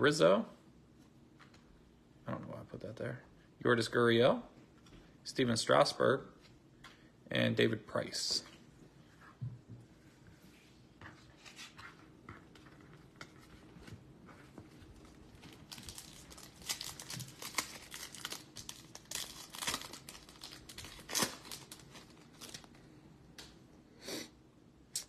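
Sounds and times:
foil wrapper crinkling: 14.9 - 22.8.

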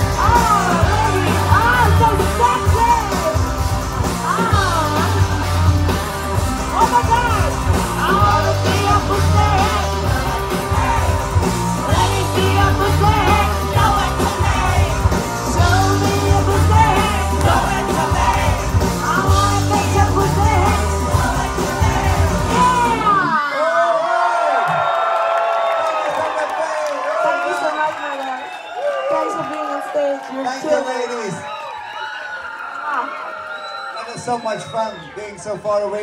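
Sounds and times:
heavy pulsing bass: 0.0 - 23.2
live rock band playing: 0.0 - 23.4
voices singing and yelling: 0.0 - 24.4.

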